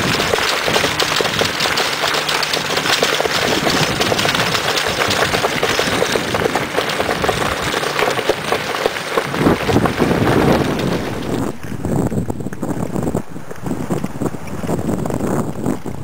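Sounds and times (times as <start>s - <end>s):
crunching footsteps: 0.0s - 12.8s
cart wheels rattling over gravel: 0.0s - 16.0s
wind buffeting the microphone: 0.0s - 16.0s.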